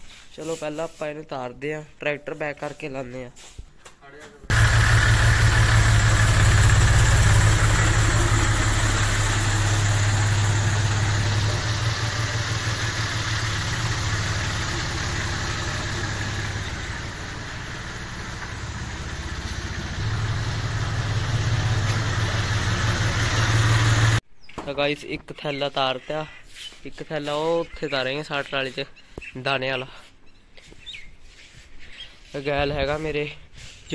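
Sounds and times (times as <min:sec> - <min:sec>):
tractor diesel engine running: 0:04.5 - 0:24.2.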